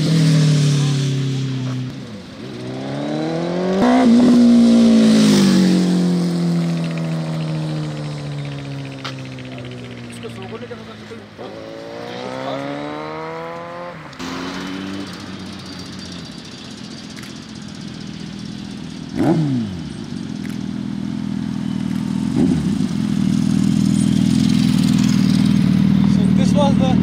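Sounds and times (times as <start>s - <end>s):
vehicle passing close: 0.0s - 17.1s
motorcycle engine accelerating: 0.0s - 27.0s.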